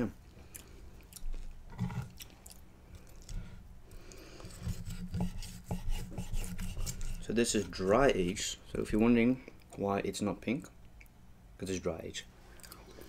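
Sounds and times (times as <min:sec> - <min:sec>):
chewing steak: 0:00.2 - 0:03.5.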